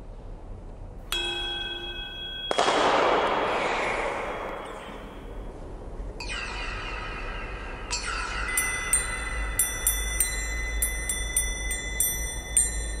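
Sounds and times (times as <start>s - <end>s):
metal bells ringing: 1.1s - 3.0s, 6.2s - 13.0s
noisy metallic wash: 1.1s - 13.0s.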